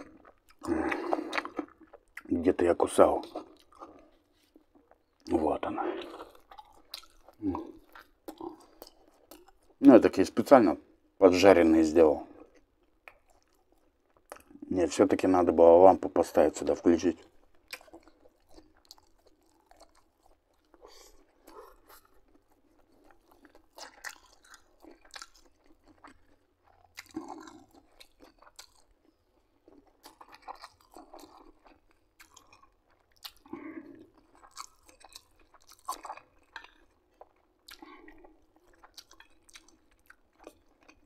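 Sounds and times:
mouth smacks and clicks: 0:00.0 - 0:02.4, 0:06.0 - 0:09.8, 0:12.5 - 0:14.7, 0:17.5 - 0:20.1, 0:37.6 - 0:41.0
person chewing: 0:00.0 - 0:09.8, 0:12.2 - 0:14.7, 0:17.2 - 0:41.0.

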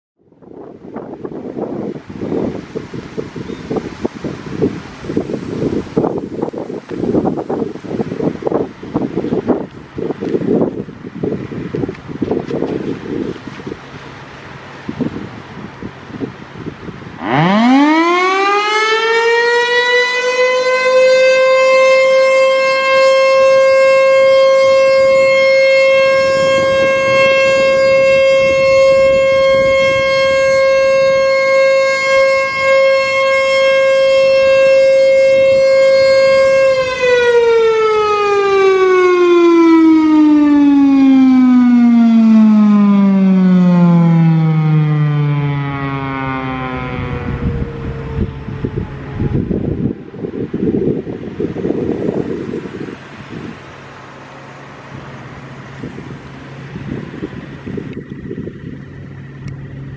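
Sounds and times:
siren steady tone: 0:16.6 - 0:59.9.

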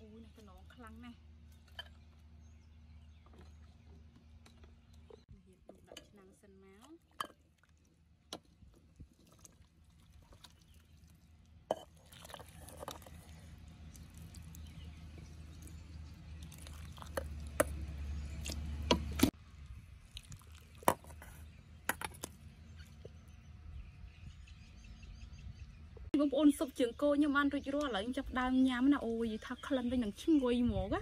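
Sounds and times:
small splashes: 0:08.8 - 0:19.3, 0:20.0 - 0:21.3.

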